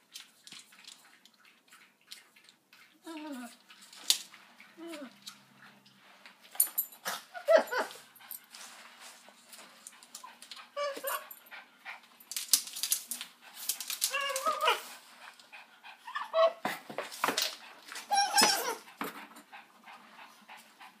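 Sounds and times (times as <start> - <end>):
dog whining and yelping: 7.0 - 8.4, 10.2 - 11.6, 14.0 - 15.0, 15.9 - 16.7, 17.9 - 19.0.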